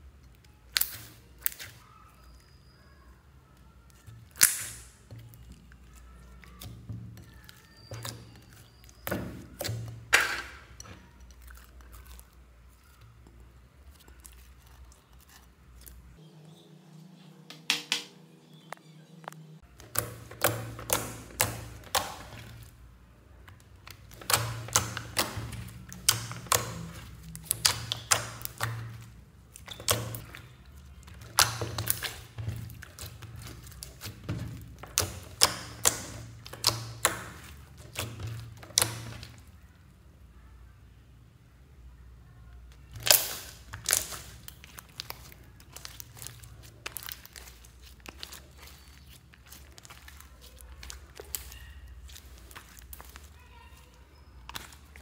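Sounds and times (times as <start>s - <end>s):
slime clicking and popping: 0.1s - 2.3s, 3.7s - 13.2s, 19.7s - 22.8s, 23.4s - 39.6s, 42.7s - 55.0s.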